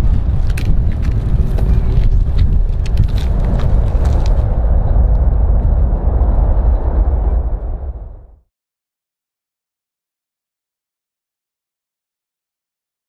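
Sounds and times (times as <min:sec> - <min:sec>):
jet engines roaring: 0:00.0 - 0:08.4
wind buffeting microphone: 0:00.0 - 0:08.4.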